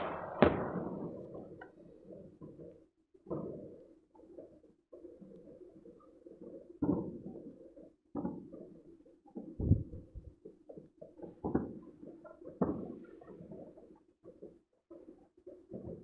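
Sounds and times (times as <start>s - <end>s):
distant fireworks bangs: 0.0s - 2.7s.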